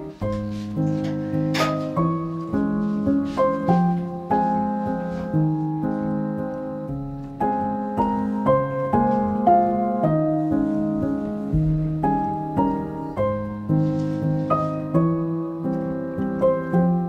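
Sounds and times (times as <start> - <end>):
soft piano music: 0.0 - 17.0.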